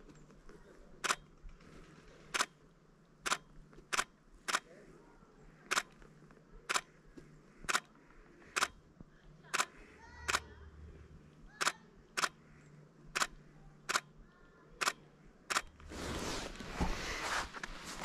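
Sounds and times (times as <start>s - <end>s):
sharp short clicks: 2.3s - 2.6s, 3.2s - 4.7s, 5.7s - 6.0s, 6.7s - 6.9s, 7.6s - 8.8s, 9.5s - 10.6s, 11.5s - 12.4s, 13.1s - 14.2s, 14.8s - 15.8s.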